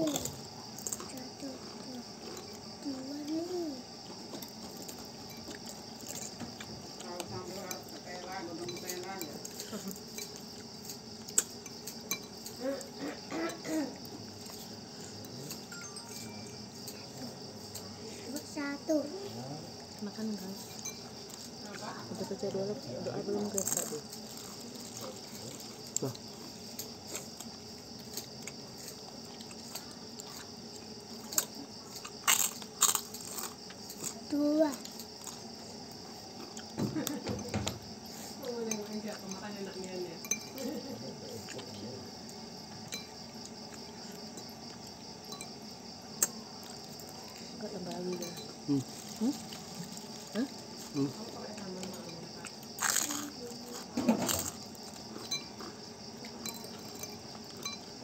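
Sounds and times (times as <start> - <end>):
gnawing eating noise: 0.0 - 18.6, 19.3 - 58.0
insects chirring: 0.0 - 58.0
spoons clinking on bowls: 11.6 - 12.5.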